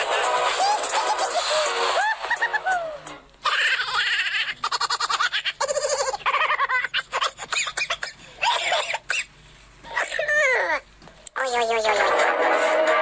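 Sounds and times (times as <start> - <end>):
woman laughing: 0.6 - 4.5
person talking: 9.9 - 12.7.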